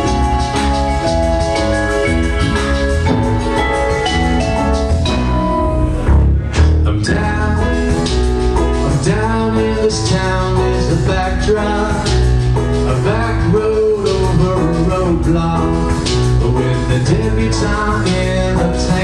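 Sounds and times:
instrumental accompaniment: 0:00.0 - 0:19.0
man singing into a microphone: 0:06.9 - 0:08.0, 0:08.7 - 0:19.0.

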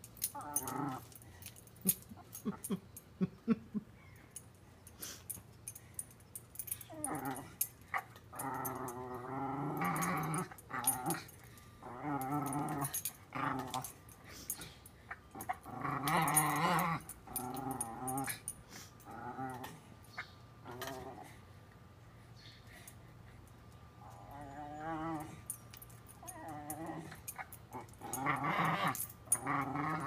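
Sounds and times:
dog growling: 0:00.2 - 0:01.2, 0:06.9 - 0:14.0, 0:15.3 - 0:19.9, 0:20.6 - 0:21.4, 0:24.0 - 0:25.6, 0:26.2 - 0:30.0.

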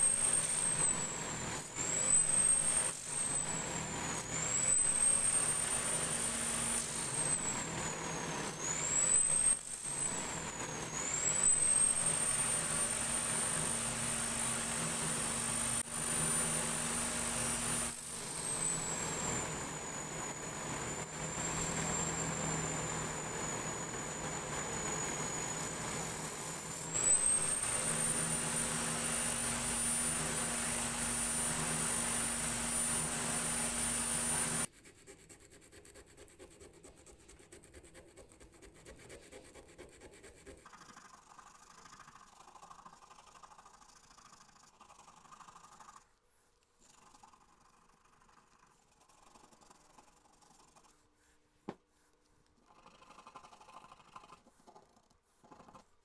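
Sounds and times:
sanding disc motor whine: 0:00.0 - 0:34.7.

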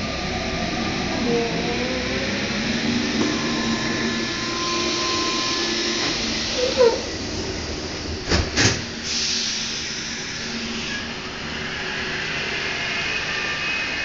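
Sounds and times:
thin high whine: 0:02.6 - 0:07.0.

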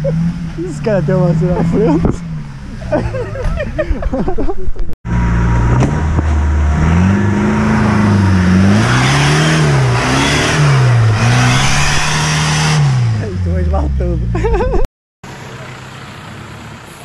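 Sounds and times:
car engine revving: 0:00.0 - 0:03.9, 0:05.1 - 0:14.5.

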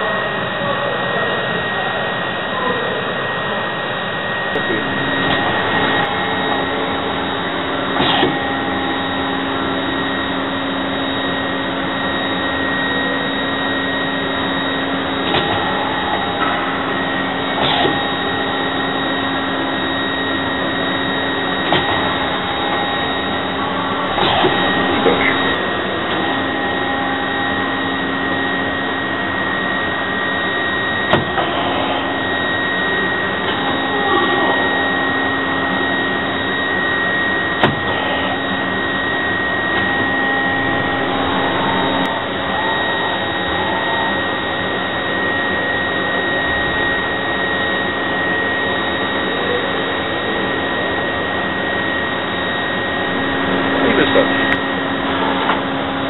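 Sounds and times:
lathe hum and whine: 0:00.0 - 0:56.0.

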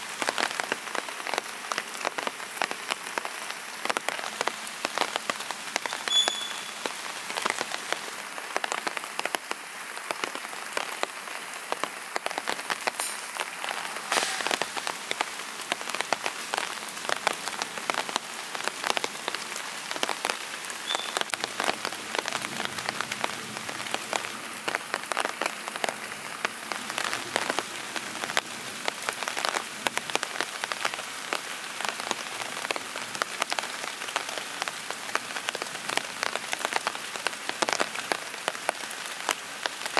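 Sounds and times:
raindrops striking surface: 0:00.0 - 0:39.9
steady rain: 0:00.0 - 0:39.9.

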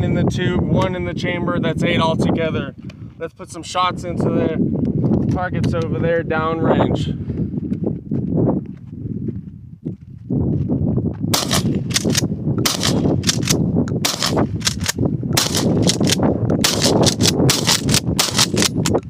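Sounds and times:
shotgun shots: 0:11.3 - 0:18.8
shotgun pump action: 0:11.4 - 0:19.0.

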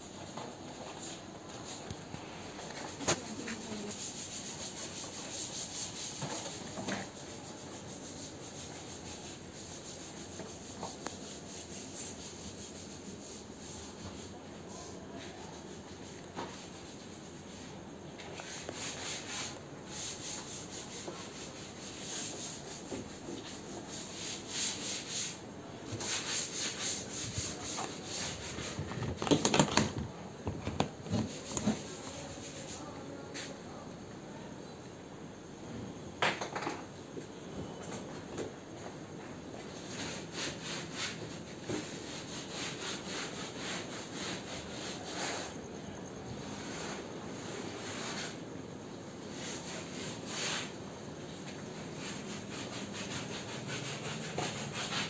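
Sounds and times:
rubbing and scuffing: 0:00.0 - 0:33.8, 0:39.6 - 0:45.6, 0:46.4 - 0:48.4, 0:49.3 - 0:50.8, 0:51.4 - 0:55.0.

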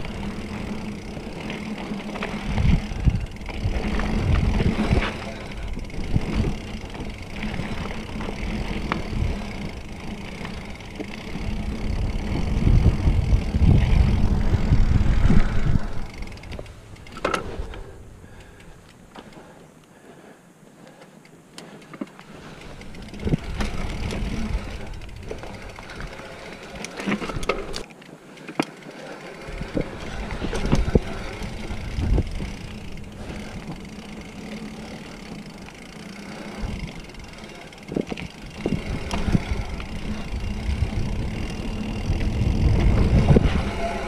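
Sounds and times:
wind rumble on microphone: 0:00.0 - 0:16.7, 0:22.8 - 0:26.2, 0:29.4 - 0:33.9, 0:36.5 - 0:44.0
bike frame and chain clattering: 0:00.0 - 0:19.6, 0:21.6 - 0:44.0
bike tyres rolling over dirt: 0:00.0 - 0:44.0.

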